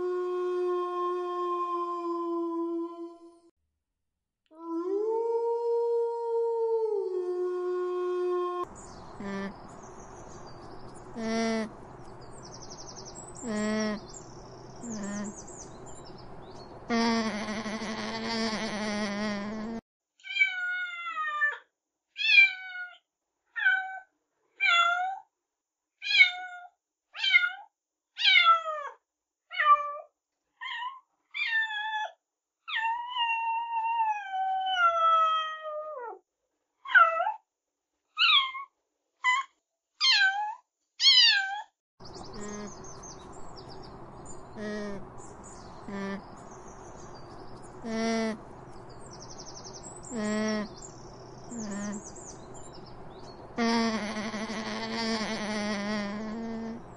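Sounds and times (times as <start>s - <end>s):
outdoor background hiss: 7.6s - 19.8s, 42.0s - 56.9s
cat meowing: 20.2s - 21.6s, 22.2s - 23.0s, 23.6s - 24.0s, 26.0s - 32.1s, 34.1s - 36.0s, 38.2s - 38.7s, 40.0s - 41.7s.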